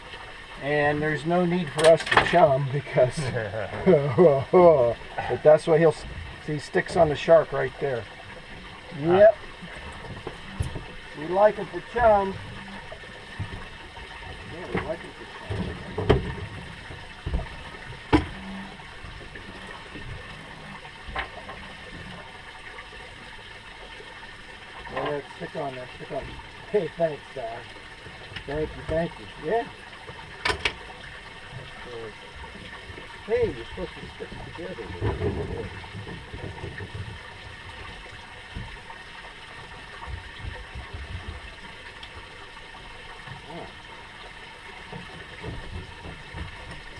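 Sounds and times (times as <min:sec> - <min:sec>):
water lapping against boat hull: 0:00.0 - 0:46.9
gear knocking on boat: 0:44.8 - 0:46.9.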